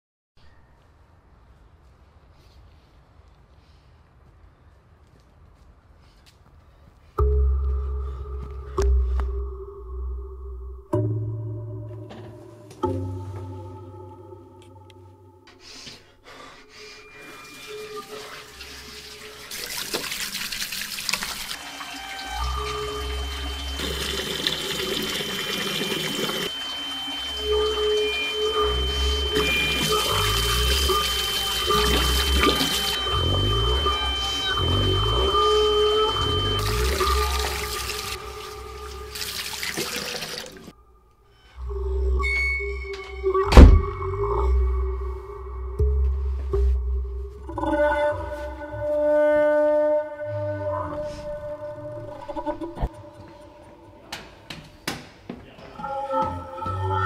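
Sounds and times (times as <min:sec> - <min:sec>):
tap water running: 0:17.5 - 0:33.5, 0:36.2 - 0:40.7
hands washing under water: 0:18.0 - 0:22.0, 0:36.6 - 0:40.7
droning music score: 0:21.5 - 0:39.8, 0:40.6 - 0:54.5
low rumbling drone: 0:21.6 - 0:39.3, 0:40.7 - 0:54.0.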